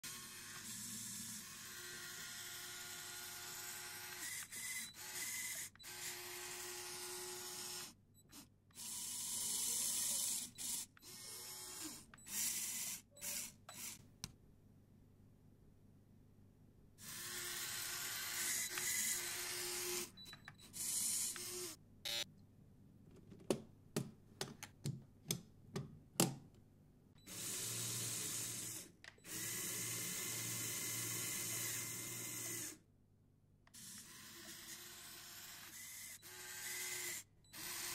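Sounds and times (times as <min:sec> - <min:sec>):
small electric motors whirring: 0:00.0 - 0:14.0, 0:17.0 - 0:22.2, 0:27.3 - 0:32.8, 0:33.7 - 0:37.9.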